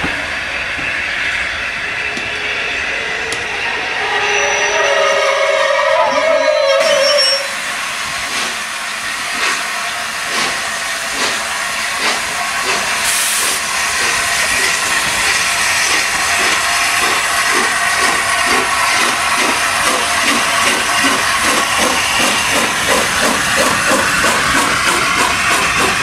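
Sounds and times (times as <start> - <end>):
passing train: 0.0 - 26.0
hiss of steam: 7.4 - 26.0
steam locomotive exhaust beats: 7.4 - 26.0.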